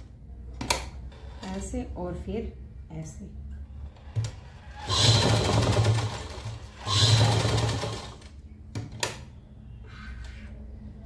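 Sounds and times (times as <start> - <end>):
sewing machine stitching: 4.5 - 8.3.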